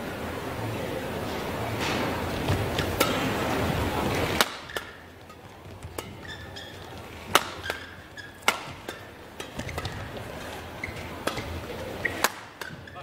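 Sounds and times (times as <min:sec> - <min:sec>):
crowd noise: 0:00.0 - 0:13.0
court shoes squeaking: 0:01.0 - 0:13.0
racket striking shuttlecock: 0:02.3 - 0:13.0.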